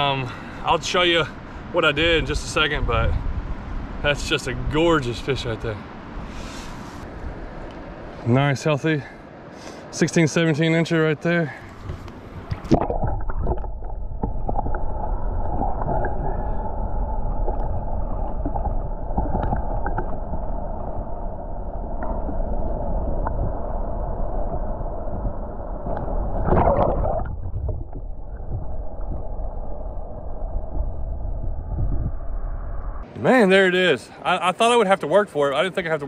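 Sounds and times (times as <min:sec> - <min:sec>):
water swirling: 0:11.8 - 0:30.0
muffled underwater river rumble: 0:11.8 - 0:33.0.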